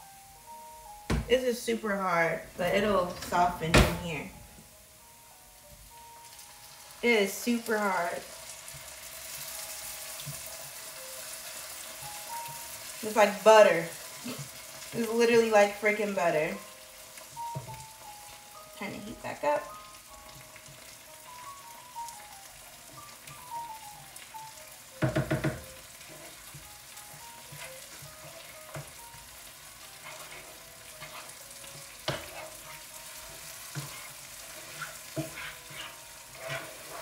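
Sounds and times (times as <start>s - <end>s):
vegetables sizzling in a frying pan: 0.0s - 37.0s
wooden spoon stirring and scraping: 25.4s - 37.0s.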